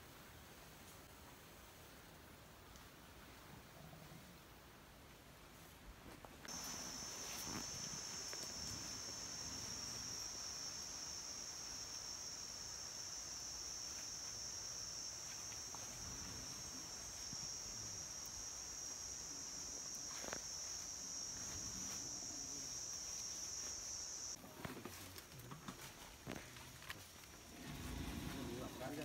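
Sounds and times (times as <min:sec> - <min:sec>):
forest insects droning: 0:06.4 - 0:29.0.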